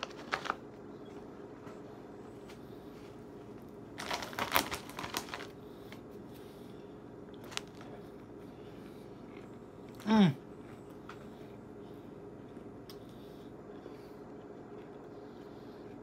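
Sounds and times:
foil chip bag crinkling: 0.0 - 0.7, 3.9 - 5.6, 7.4 - 8.0
steady low hum: 0.0 - 16.0.

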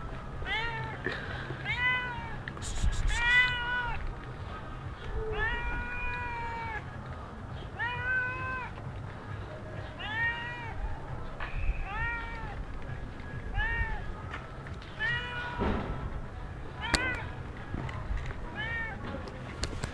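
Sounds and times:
cat meowing: 1.6 - 2.4, 3.1 - 4.0, 5.1 - 6.8, 7.8 - 8.8, 10.0 - 10.8, 11.8 - 12.6, 13.5 - 14.1, 15.0 - 15.6, 16.8 - 17.3, 18.5 - 19.1.

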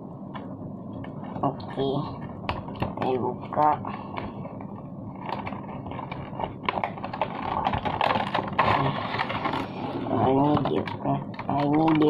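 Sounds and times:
plastic tray crinkling: 4.0 - 12.0
cardboard box opening: 5.2 - 10.7.

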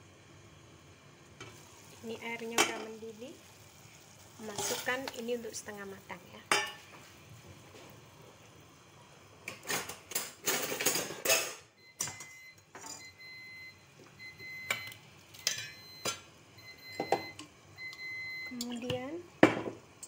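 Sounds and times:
water boiling: 0.0 - 10.5
metal clinking against pot: 6.5 - 6.8.

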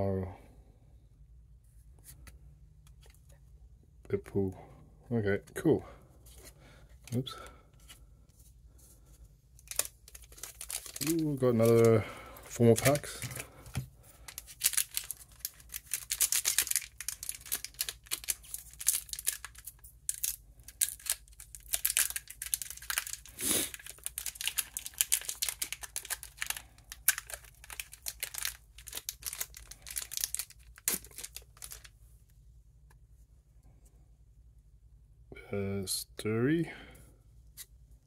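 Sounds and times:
wrapper tearing and crinkling: 9.6 - 31.9.

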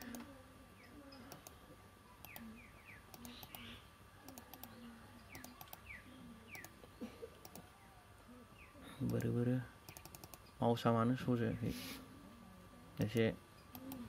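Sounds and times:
computer mouse clicks: 0.0 - 0.3, 1.3 - 1.6, 2.2 - 2.5, 3.1 - 5.9, 6.5 - 6.8, 7.4 - 7.7, 9.0 - 9.3, 9.9 - 10.5, 13.0 - 14.0
bird chirping: 2.1 - 10.8.

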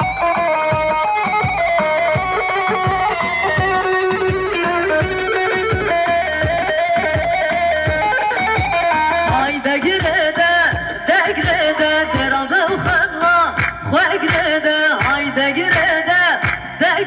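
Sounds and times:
plucked-string melody: 0.0 - 13.4
steady drum beat: 0.0 - 16.8.

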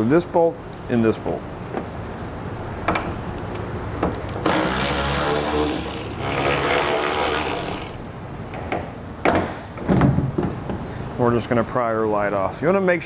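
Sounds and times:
electric ratchet running: 3.6 - 8.1.

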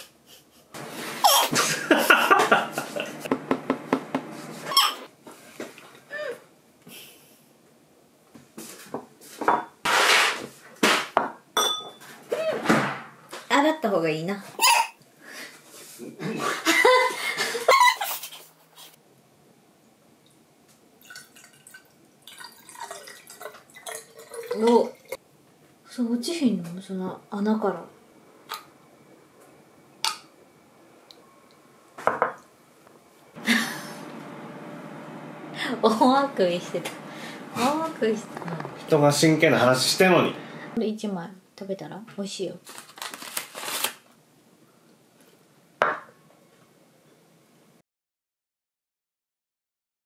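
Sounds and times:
person laughing: 0.3 - 3.7, 16.2 - 18.5, 33.4 - 34.0
liquid pouring over ice: 21.0 - 25.2.

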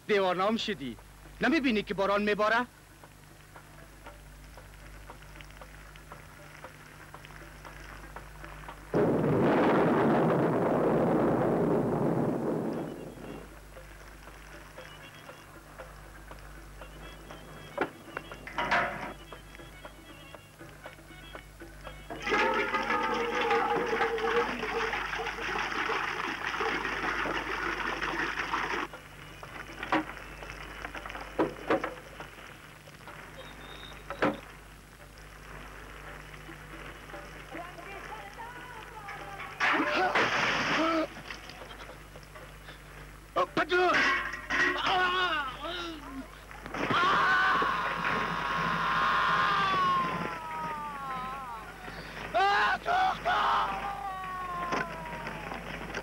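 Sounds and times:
faint ticks: 0.9 - 9.1, 11.6 - 22.2, 28.9 - 39.5
heavy rain: 5.2 - 14.9
water splashing onto ground: 22.2 - 29.0, 39.6 - 42.3.

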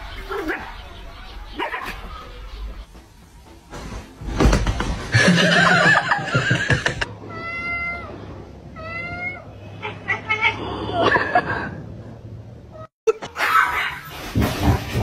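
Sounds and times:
cat meowing: 7.3 - 8.2, 8.8 - 10.6.

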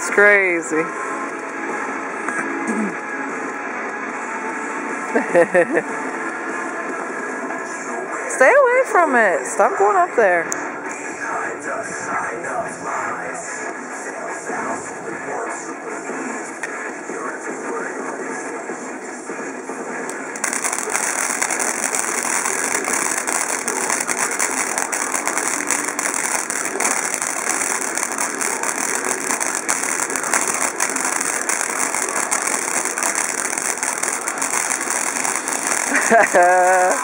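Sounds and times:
firework hissing and crackling: 0.0 - 1.9, 5.2 - 5.8, 11.0 - 37.0.

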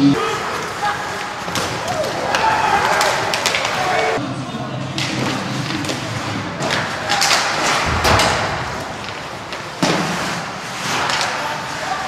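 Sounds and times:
sticks hitting puck: 0.5 - 3.9, 5.0 - 12.0
skates on ice: 5.0 - 12.0.

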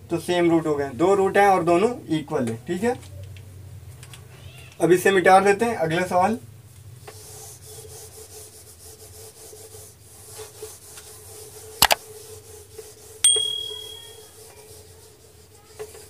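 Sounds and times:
eraser rubbing on whiteboard: 7.0 - 13.2, 14.0 - 16.0
high ringing ping: 13.2 - 14.4.

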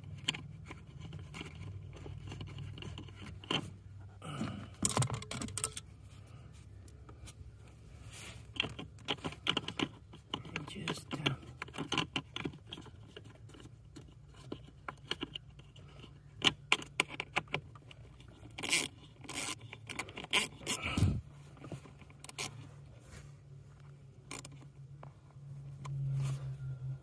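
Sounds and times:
steady low hum: 0.0 - 27.0
ratchet clicking: 18.6 - 20.8.

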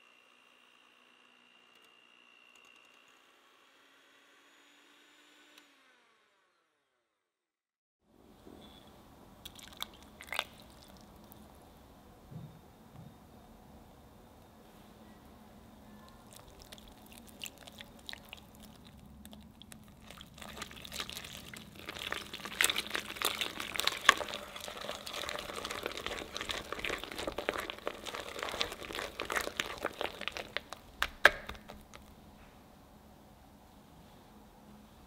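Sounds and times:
whisk mixing batter in a bowl: 16.2 - 32.0.

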